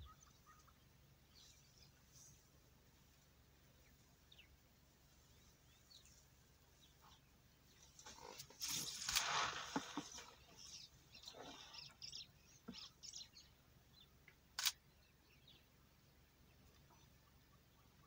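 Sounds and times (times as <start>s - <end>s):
rustling and scuffing in dry grass: 7.9s - 11.0s.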